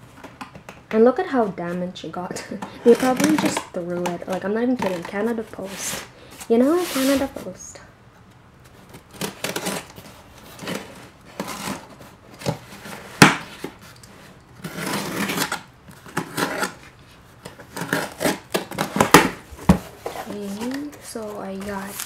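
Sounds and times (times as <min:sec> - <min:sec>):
cardboard handling: 0:02.9 - 0:07.6, 0:14.6 - 0:22.0
knife cutting packing tape: 0:08.9 - 0:12.6, 0:14.6 - 0:19.4.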